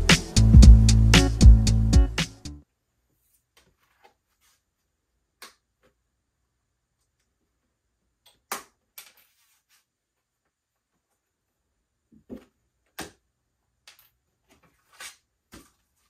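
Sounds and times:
paper sheets rustling: 9.0s - 9.9s, 14.5s - 16.0s.

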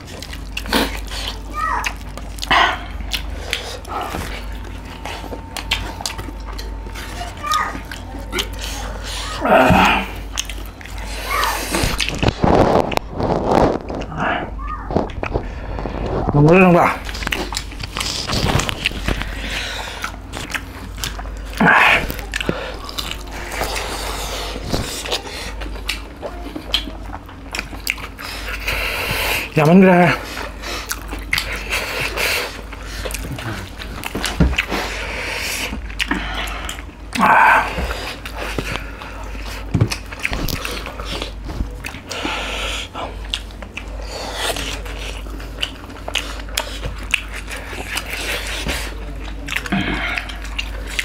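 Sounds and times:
people chewing and lip smacking: 0.0s - 51.0s
steady low hum: 0.0s - 51.0s
fingers squelching through food: 14.8s - 51.0s.

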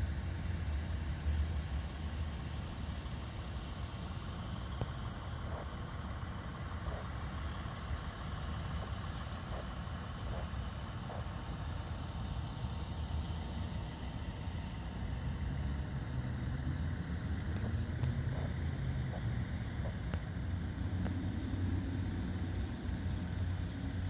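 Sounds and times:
vehicle engine rumble: 0.0s - 24.0s.

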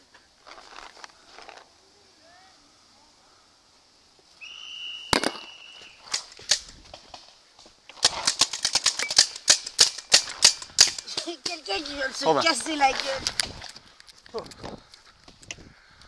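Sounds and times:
paintball marker firing: 5.1s - 5.5s.

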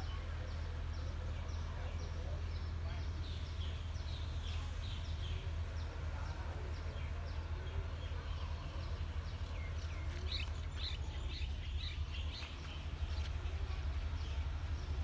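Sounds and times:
steady low rumble: 2.5s - 15.0s
bird chirping: 6.8s - 15.0s.

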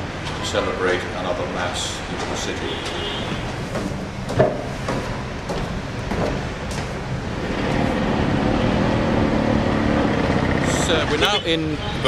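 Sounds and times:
road traffic: 0.0s - 12.0s
vehicle engine running: 6.9s - 11.3s.

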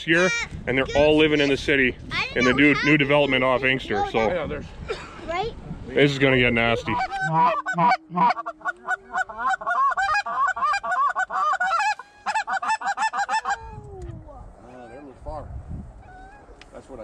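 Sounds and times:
geese honking: 6.6s - 13.7s.

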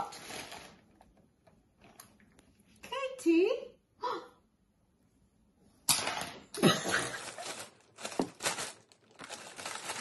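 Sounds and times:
plastic bag rustling: 0.0s - 1.1s, 6.6s - 10.0s.

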